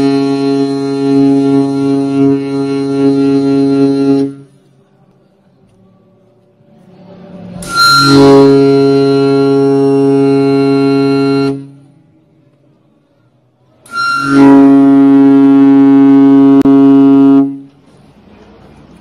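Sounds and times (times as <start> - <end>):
air horn blasts: 0.0 - 4.6, 7.6 - 11.9, 13.8 - 17.8.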